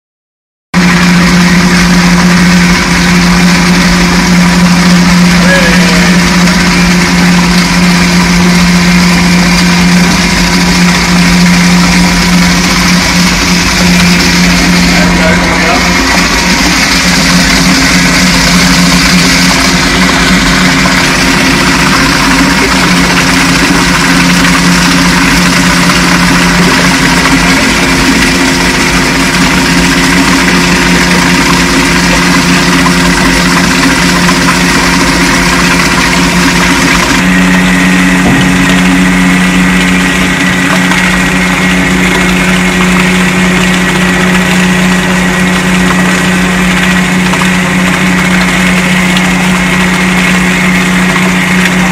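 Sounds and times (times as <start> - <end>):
paper pulper churning: 0.8 - 51.9.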